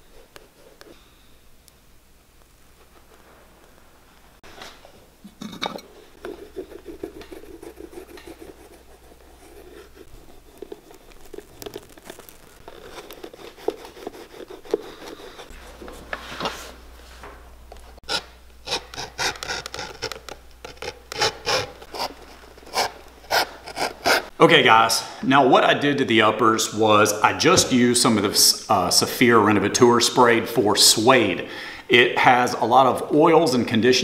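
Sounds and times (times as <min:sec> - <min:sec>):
burnishing tool rubbing leather: 0:00.0 - 0:01.0, 0:06.1 - 0:16.8, 0:17.9 - 0:24.4.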